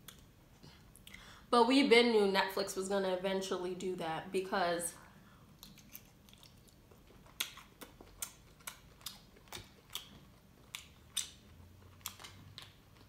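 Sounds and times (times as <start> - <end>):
wet mouth clicks: 5.6 - 12.8
close chewing: 5.6 - 13.0.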